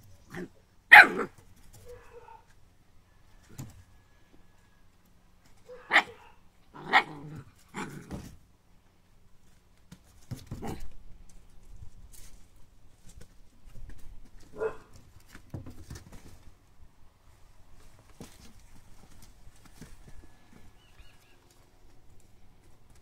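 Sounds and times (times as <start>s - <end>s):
puppies barking: 0.9s - 2.4s, 5.7s - 7.1s.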